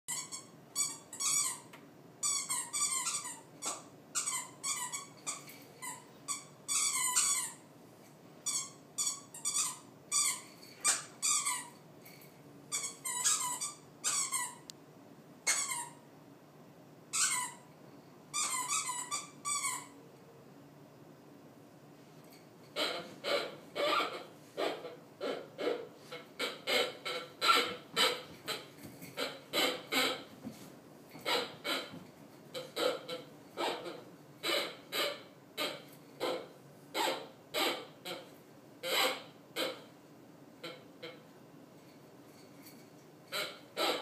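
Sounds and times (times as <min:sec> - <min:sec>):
dog toy squeaking: 0:00.1 - 0:07.7, 0:08.4 - 0:14.7, 0:15.4 - 0:16.0, 0:17.1 - 0:17.7, 0:18.3 - 0:20.0, 0:22.7 - 0:30.4, 0:31.1 - 0:39.9, 0:42.7 - 0:44.0.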